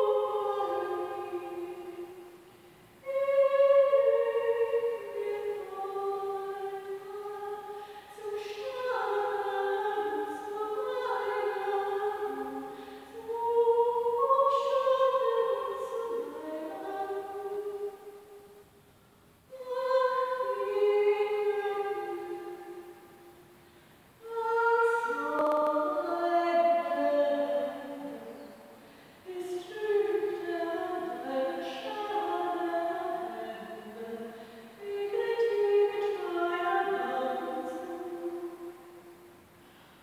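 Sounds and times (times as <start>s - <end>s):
solo voice singing: 3.0s - 18.0s.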